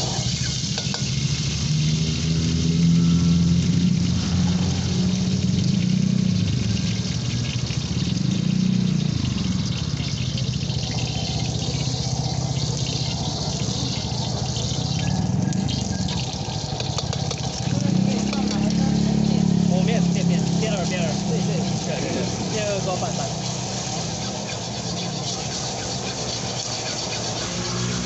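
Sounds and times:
hot oil sizzling in a wok: 0.0s - 28.0s
low burner rumble: 0.0s - 28.0s
eggs dropped into hot oil: 15.6s - 18.8s.

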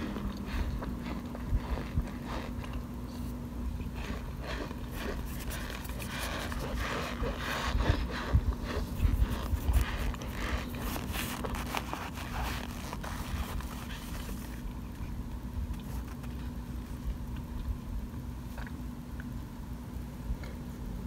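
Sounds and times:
plastic spoon crunching starch chunks: 3.8s - 14.8s.

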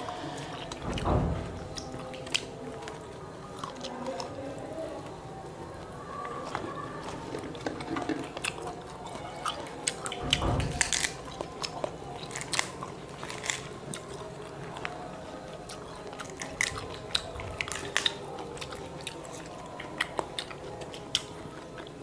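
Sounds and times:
close-up chewing: 0.0s - 22.0s
fruit rind cracking and snapping: 9.8s - 14.9s.

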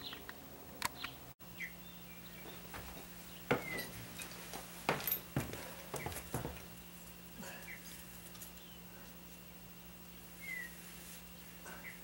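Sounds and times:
taps on metal screen door: 2.7s - 4.3s
faint bird chirps: 10.1s - 12.0s.

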